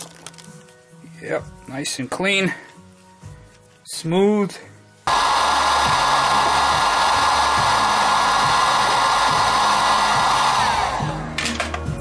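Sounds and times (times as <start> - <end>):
heat gun blowing air: 5.1 - 11.2.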